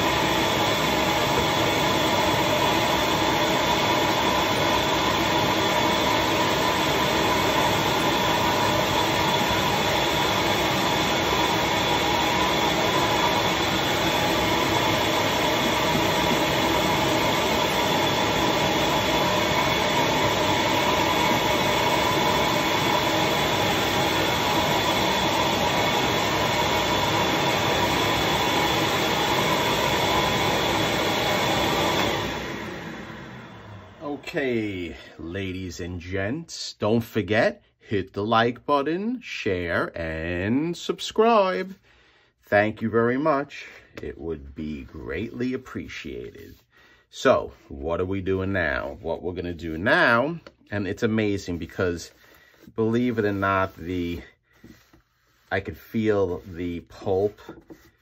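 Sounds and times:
vacuum motor running: 0.0 - 34.9.

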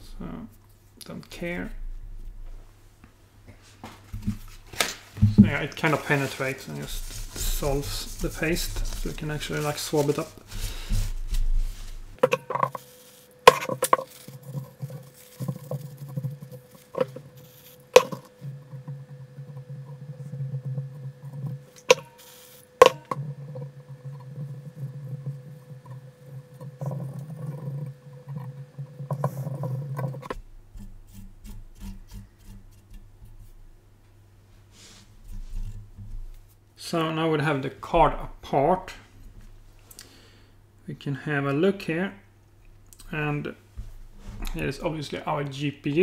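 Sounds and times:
steady hum: 0.0 - 46.0
hard parts tapping and knocking: 4.1 - 30.5.

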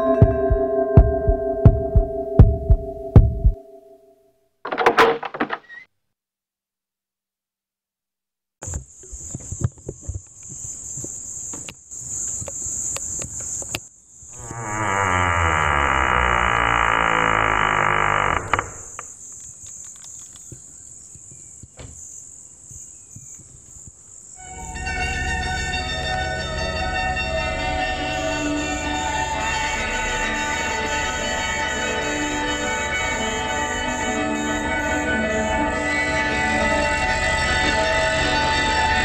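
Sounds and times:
crickets chirping: 8.6 - 39.0
scattered clicks: 19.3 - 20.5.

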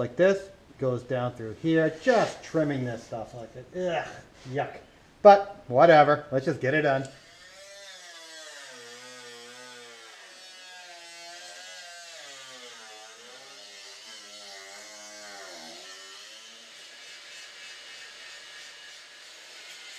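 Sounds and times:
electric cutting tool buzzing: 7.0 - 19.9.

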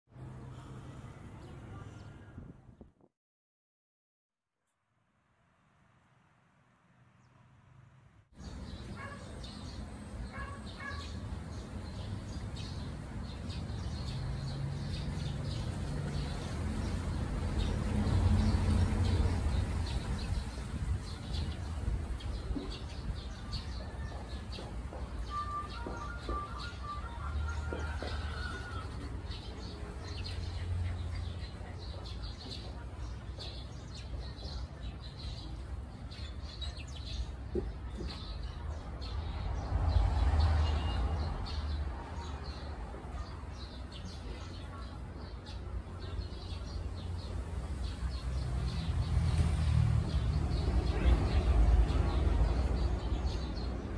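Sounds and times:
wind rumble on microphone: 2.2 - 3.1
birds chirping: 8.4 - 53.9.

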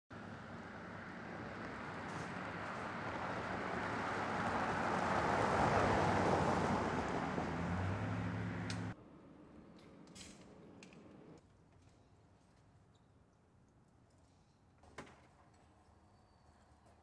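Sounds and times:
vehicle driving past: 0.2 - 9.3.

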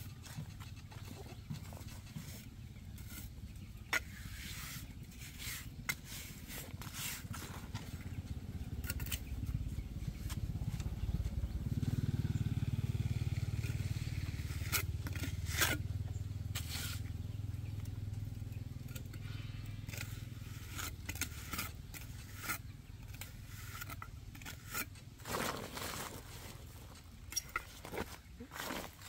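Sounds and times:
low engine hum: 0.0 - 29.0
trowel scraping stones and mortar: 1.2 - 8.2, 13.6 - 17.8, 18.7 - 29.0.

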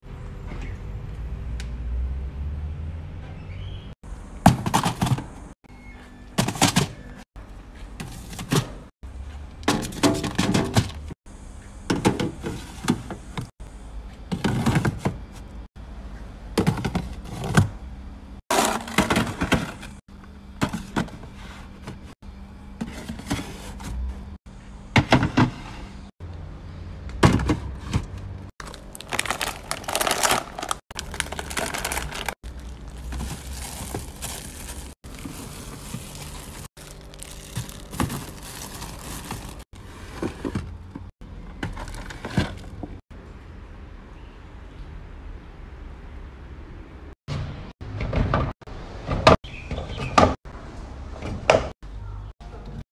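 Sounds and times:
plastic bags crinkling: 28.6 - 39.7.

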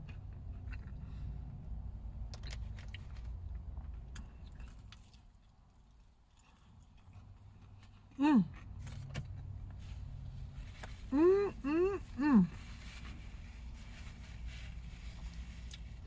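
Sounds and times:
person chewing: 0.0 - 1.3, 2.2 - 9.5, 15.2 - 16.0
person humming: 11.1 - 12.6.

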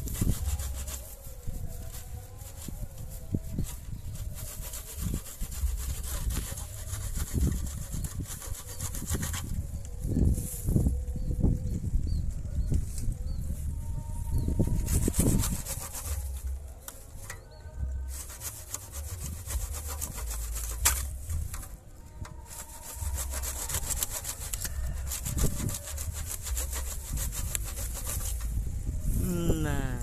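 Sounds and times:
hand saw cutting wood: 0.0 - 1.2, 4.4 - 9.6, 14.8 - 16.6, 18.1 - 28.6.

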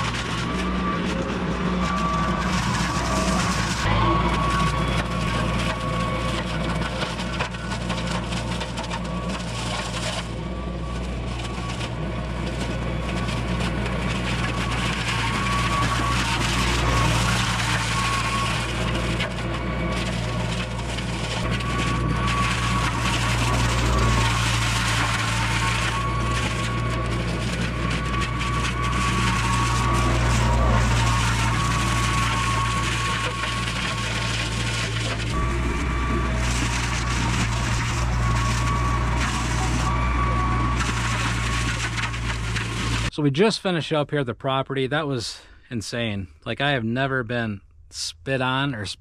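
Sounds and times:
mulcher high whine: 0.0 - 49.0
tractor engine hum: 0.0 - 49.0
wood snapping and cracking: 11.0 - 43.1.

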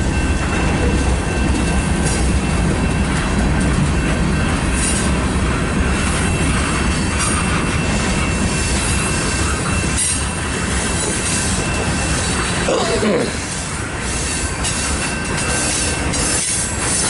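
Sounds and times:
train cars clanking: 0.0 - 17.0
train wheels rumbling on rail: 0.0 - 17.0.

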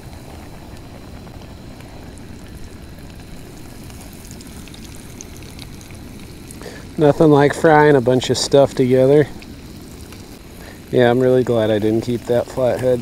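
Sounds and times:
fish frying in oil: 0.0 - 13.0.

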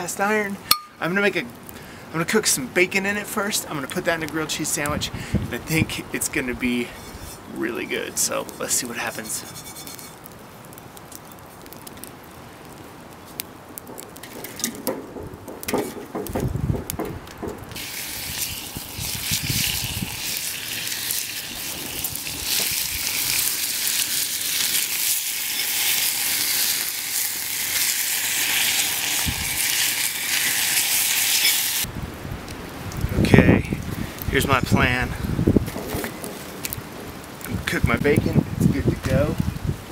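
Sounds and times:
wind gusts on microphone: 4.8 - 7.5, 16.2 - 20.5, 29.2 - 29.7, 31.8 - 39.9
bacon sizzling in a skillet: 8.7 - 10.3, 17.8 - 31.9
knocks and handling noise: 13.8 - 17.8.

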